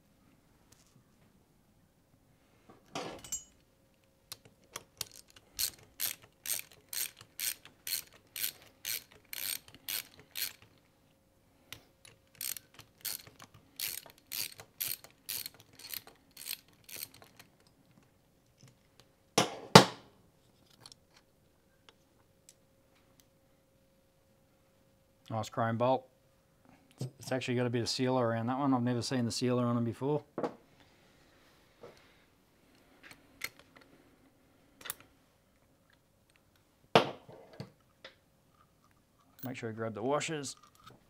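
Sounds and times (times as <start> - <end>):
hand ratchet clicking: 4.3 - 10.8, 11.7 - 17.6.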